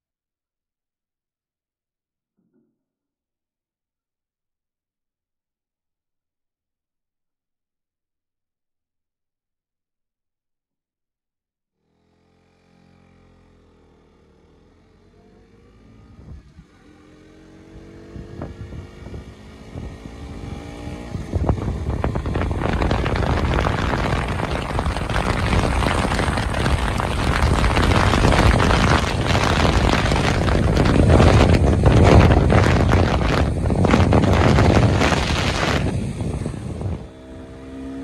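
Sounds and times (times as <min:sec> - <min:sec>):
motorcycle engine: 0:12.0 - 0:38.0
wind rushing over microphone: 0:16.1 - 0:16.6, 0:17.6 - 0:37.9.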